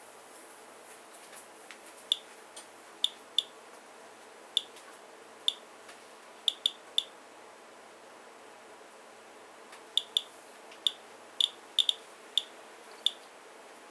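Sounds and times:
geiger counter clicking: 0:06.5 - 0:07.1, 0:10.0 - 0:13.2.

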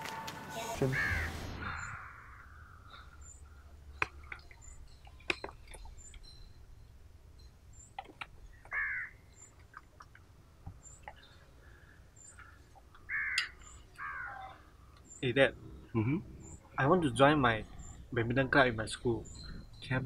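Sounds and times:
bird calls: 0:00.5 - 0:06.6, 0:07.7 - 0:09.9, 0:10.7 - 0:20.0
faint high chirps: 0:13.3 - 0:20.0.

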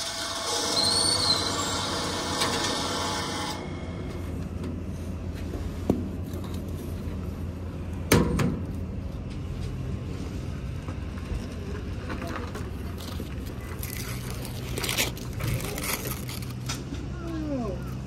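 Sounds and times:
steady low hum: 0:01.8 - 0:18.0
aluminium foil crinkling: 0:12.2 - 0:16.8.

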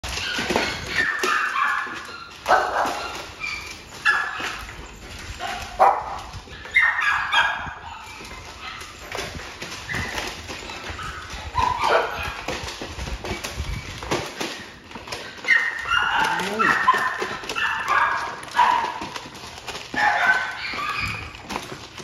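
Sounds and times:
dog yipping and barking: 0:00.1 - 0:12.8, 0:15.0 - 0:21.8
dogs crunching kibble from tray: 0:08.0 - 0:22.0.

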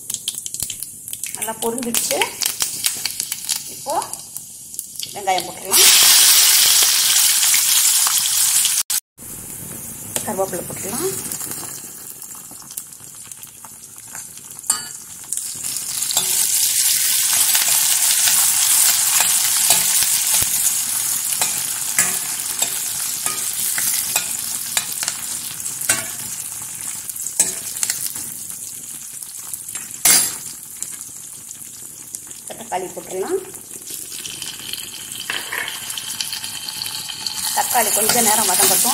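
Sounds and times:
onions sizzling in hot oil: 0:00.0 - 0:38.9
spatula scraping and knocking pan: 0:21.4 - 0:25.3.

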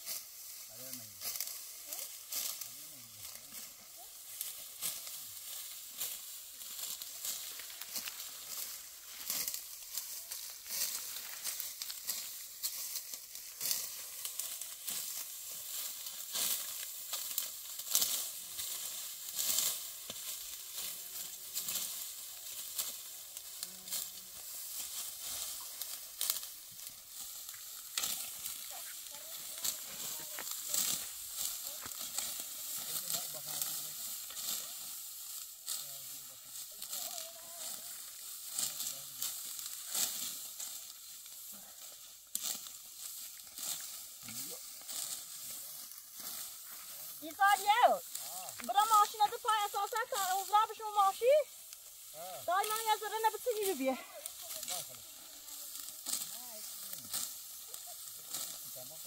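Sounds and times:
dry wheat stalks rustling: 0:00.0 - 0:59.0.

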